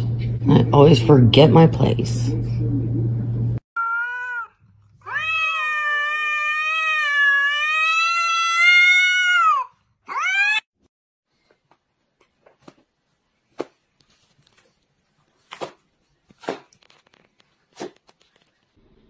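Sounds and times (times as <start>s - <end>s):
cat yowling: 3.8s - 10.7s.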